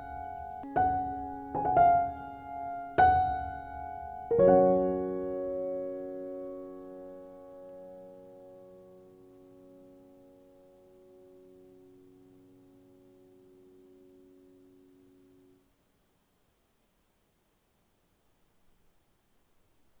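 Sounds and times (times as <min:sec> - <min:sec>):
soft low sustained chord: 0:00.0 - 0:15.7
crickets chirping: 0:00.0 - 0:20.0
high insect hum: 0:00.0 - 0:20.0.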